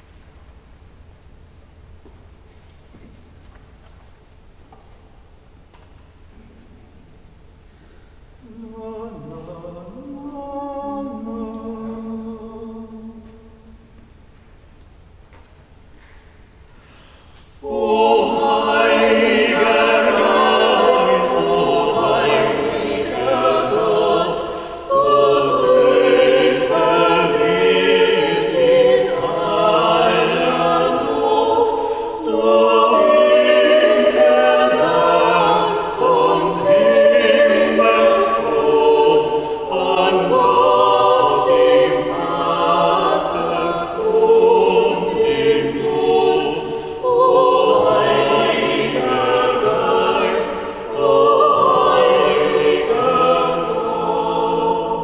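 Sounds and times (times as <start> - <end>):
choir singing sacred music: 8.4 - 14.2, 17.2 - 55.0.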